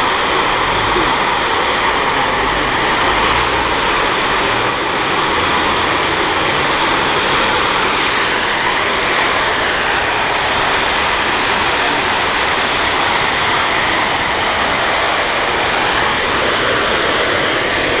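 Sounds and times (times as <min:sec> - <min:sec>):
gas fire roaring: 0:00.0 - 0:18.0.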